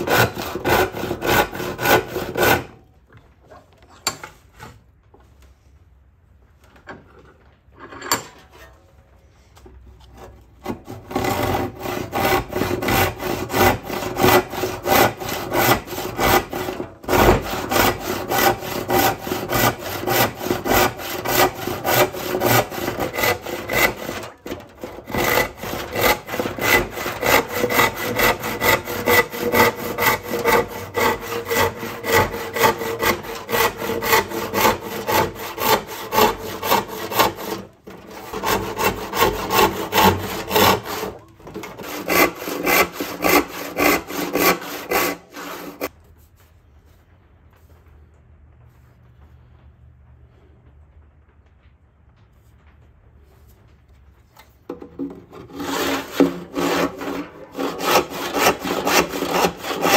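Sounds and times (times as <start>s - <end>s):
handsaw cutting wood: 0.0s - 2.8s, 10.2s - 45.9s, 54.7s - 59.9s.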